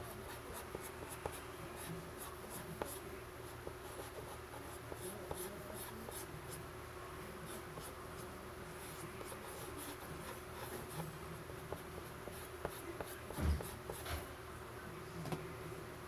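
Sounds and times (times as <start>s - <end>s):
faint steady hum: 0.0s - 16.0s
pastel scratching on paper: 3.6s - 6.3s, 8.8s - 14.1s.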